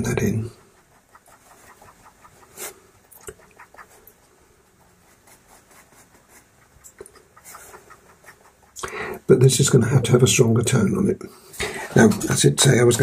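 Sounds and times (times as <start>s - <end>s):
pencil scratching on paper: 0.0s - 8.8s.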